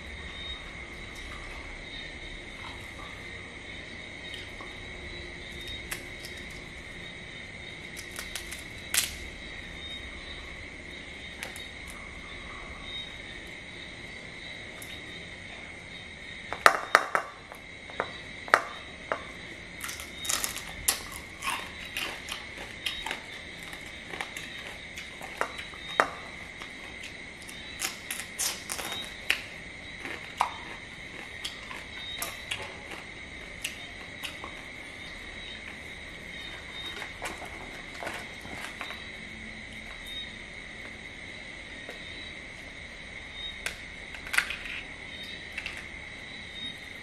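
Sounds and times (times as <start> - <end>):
crab shells cracking: 5.6 - 6.6, 7.9 - 9.3, 18.5 - 34.7, 43.6 - 44.9
chewing: 19.8 - 39.1.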